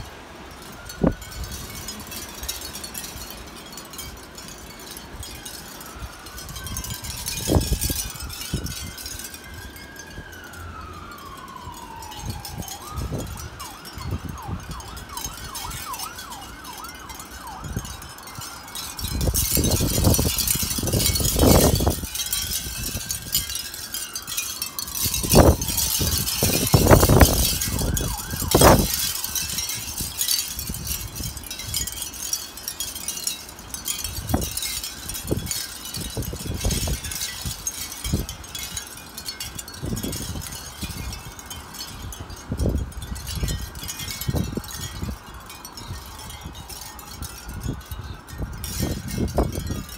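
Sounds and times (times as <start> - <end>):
wind chime tinkling: 0.0 - 49.9
wind gusts buffeting microphone: 0.0 - 49.9
siren wailing: 5.3 - 31.4.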